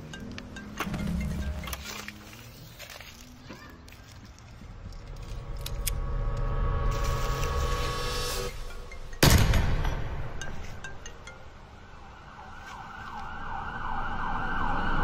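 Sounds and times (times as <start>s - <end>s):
emergency siren wailing: 12.0s - 15.0s.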